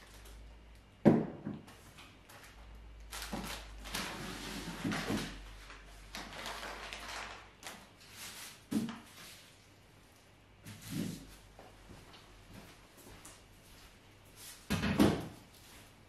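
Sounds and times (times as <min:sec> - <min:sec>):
plastic wrapping crinkling: 0:00.0 - 0:00.6, 0:02.3 - 0:08.6.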